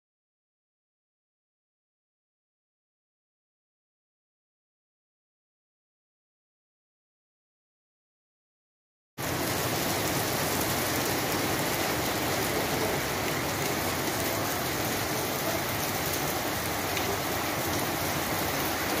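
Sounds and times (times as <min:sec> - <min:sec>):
heavy rain on wet pavement: 0:09.2 - 0:19.0.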